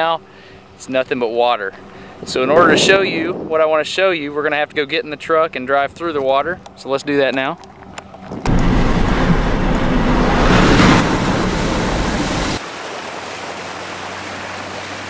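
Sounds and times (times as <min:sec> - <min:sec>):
truck tyres through floodwater: 0:04.0 - 0:15.0.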